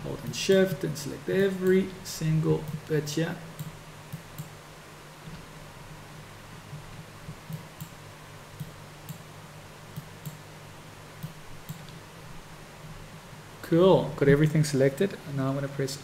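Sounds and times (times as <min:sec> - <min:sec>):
low steady hum: 0:00.0 - 0:16.0
computer mouse clicking: 0:03.6 - 0:04.5, 0:07.3 - 0:08.0, 0:08.6 - 0:09.2, 0:09.9 - 0:10.4, 0:11.2 - 0:12.0.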